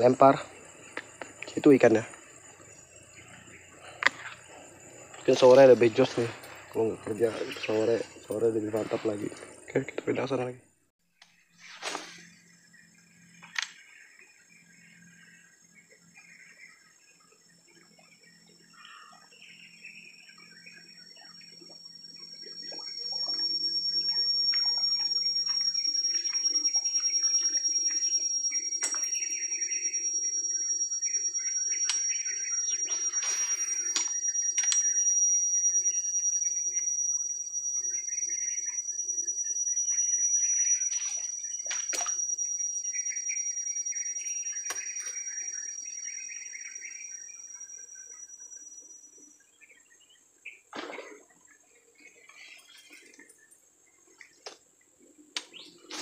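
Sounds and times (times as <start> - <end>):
high-pitched whine: 0.0 - 10.6, 11.6 - 49.8
sharp clicks: 33.9 - 34.9
water sloshing and splashing: 50.7 - 51.4.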